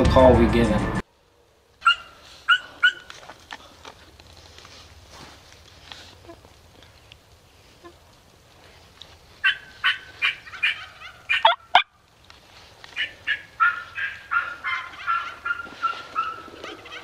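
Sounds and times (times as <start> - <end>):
turkey yelping: 1.8 - 3.1, 9.4 - 12.0, 12.9 - 17.0.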